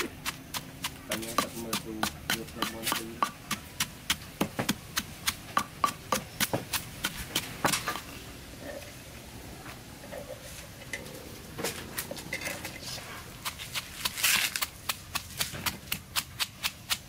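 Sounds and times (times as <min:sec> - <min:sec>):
pestle pounding in stone mortar: 0:00.0 - 0:08.0, 0:13.4 - 0:17.0.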